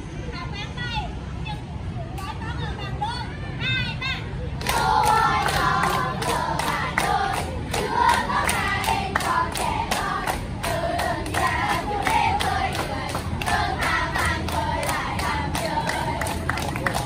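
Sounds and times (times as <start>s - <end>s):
girls singing together: 4.6s - 17.0s
hands clapping in rhythm: 4.6s - 17.0s.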